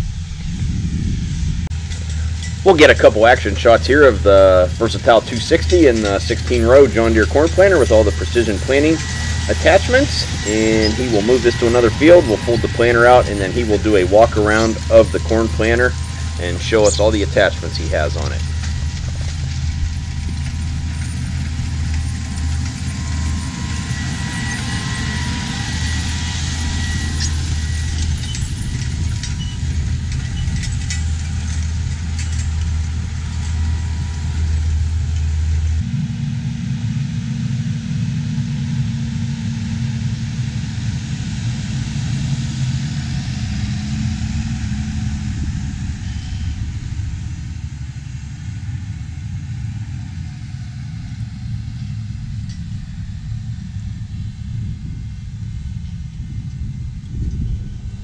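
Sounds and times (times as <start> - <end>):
tractor engine running: 0.0 - 58.0
light ticks and rattles: 1.7 - 35.8.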